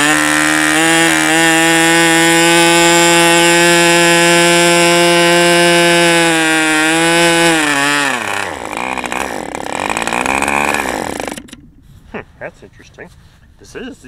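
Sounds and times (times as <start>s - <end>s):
model aircraft engine running: 8.0s - 11.6s.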